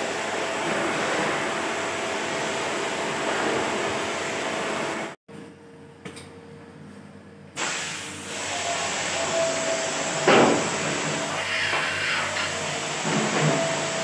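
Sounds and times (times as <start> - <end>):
high-pressure water spray: 7.6 - 14.0.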